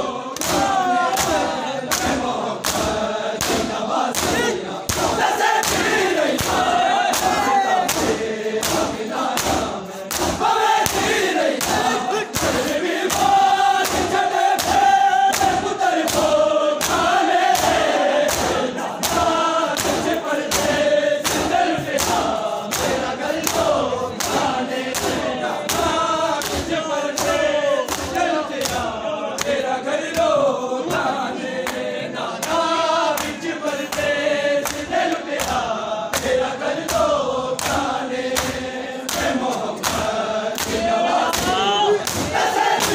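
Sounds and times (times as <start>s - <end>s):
men chanting in unison: 0.0s - 42.9s
hands slapping chests: 0.3s - 42.9s.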